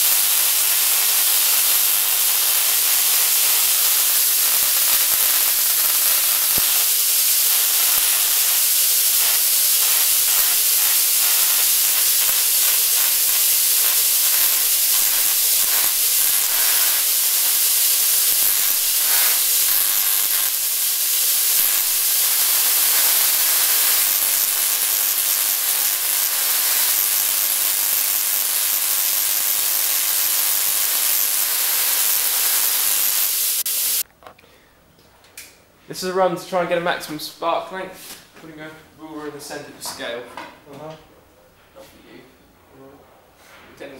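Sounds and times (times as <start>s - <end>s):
steady hum: 0.0s - 34.1s
tesla coil sparks hissing: 0.0s - 34.1s.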